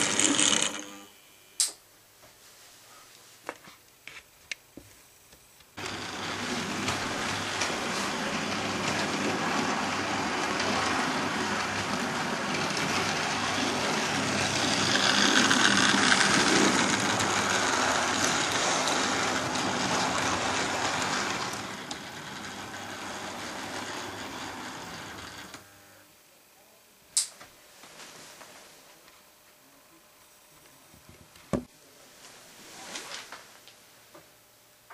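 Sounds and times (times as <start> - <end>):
model train motor whirring: 0.0 - 1.1, 5.8 - 25.7
sharp click: 1.6 - 1.8, 27.2 - 27.4
train wheels on rails: 5.8 - 25.6.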